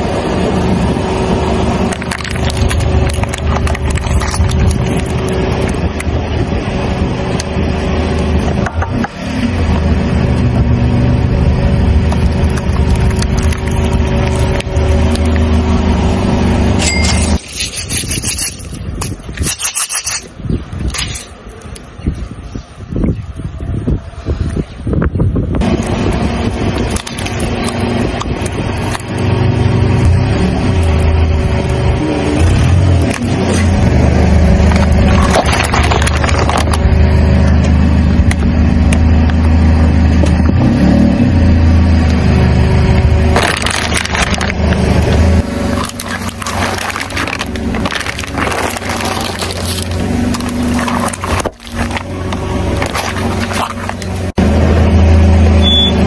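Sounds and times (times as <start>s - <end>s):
car engine running: 0.0s - 17.4s, 25.6s - 56.0s
plastic cups crackling under tyre: 1.9s - 6.1s, 12.1s - 15.5s, 34.5s - 37.7s, 43.3s - 54.4s
plastic bottle clicking and rattling: 34.8s - 36.8s, 45.8s - 52.1s.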